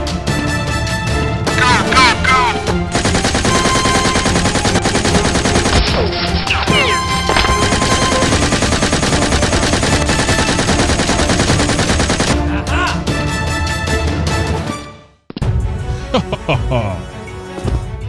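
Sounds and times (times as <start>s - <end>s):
machine-gun fire: 2.8s - 12.4s.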